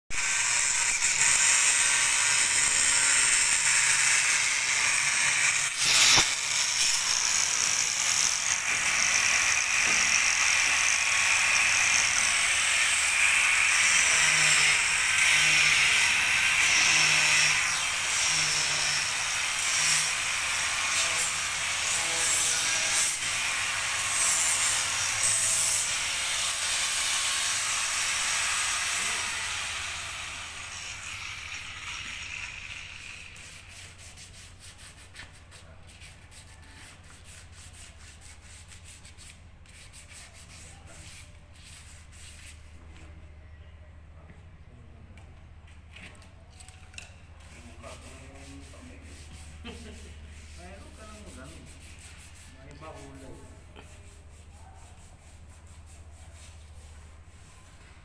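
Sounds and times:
angle grinder cutting pipe: 0.1s - 34.5s.

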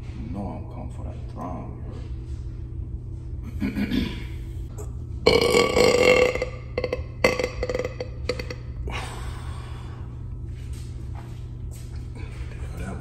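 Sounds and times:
man burping loudly: 5.3s - 8.7s.

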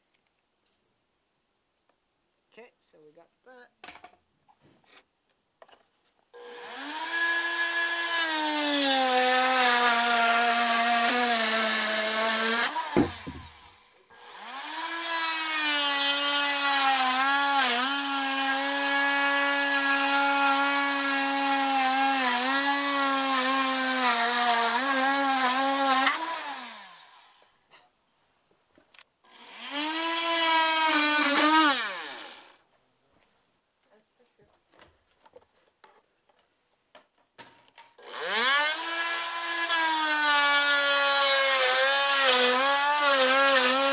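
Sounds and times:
rotary tool cutting wood: 6.4s - 27.5s, 29.3s - 32.6s, 37.8s - 43.9s
knock: 13.0s - 13.6s.

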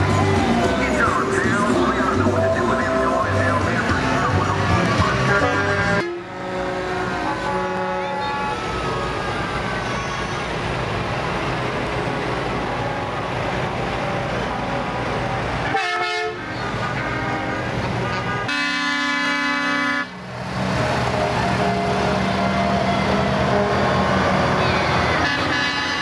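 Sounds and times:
truck engines and tyres rumbling: 0.0s - 26.0s
truck air horns blowing: 4.3s - 10.7s, 15.6s - 26.0s.

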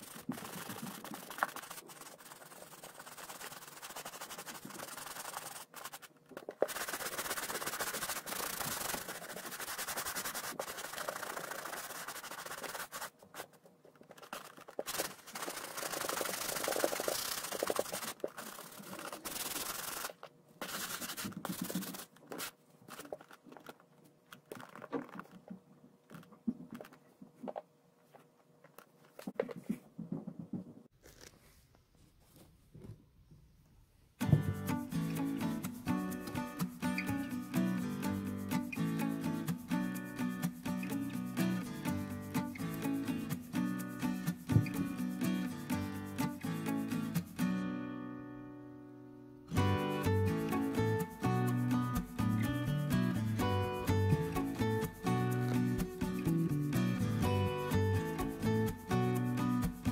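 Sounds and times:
brush scrubbing leather boot: 0.0s - 23.4s
knocks of boot and brush handled: 44.5s - 44.9s.

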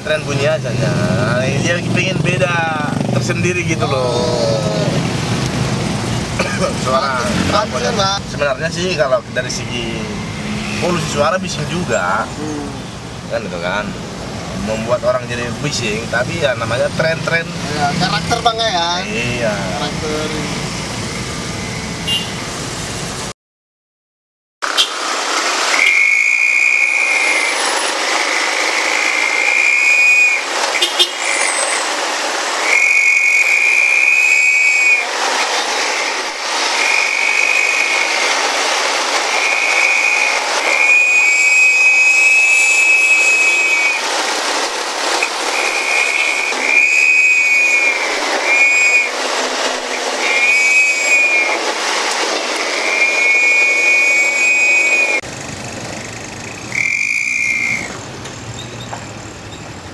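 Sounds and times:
road and wind noise: 0.0s - 23.3s, 24.6s - 59.9s
shrill exhaust whistle blasts: 25.8s - 27.9s, 28.9s - 31.8s, 32.6s - 35.2s, 36.8s - 38.2s, 39.3s - 44.1s, 45.5s - 49.2s, 50.2s - 51.7s, 52.7s - 55.2s, 56.7s - 58.0s.

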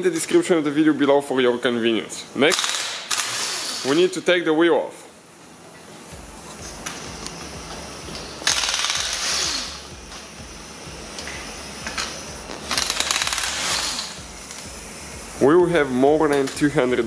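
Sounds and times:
pneumatic impact wrench hammering: 2.5s - 4.1s, 6.8s - 10.4s, 11.1s - 14.8s.

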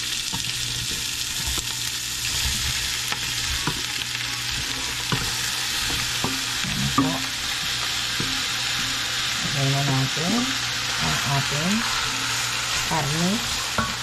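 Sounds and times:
onion sizzling in oil: 0.0s - 14.0s
utensil scraping a pan: 0.3s - 14.0s.

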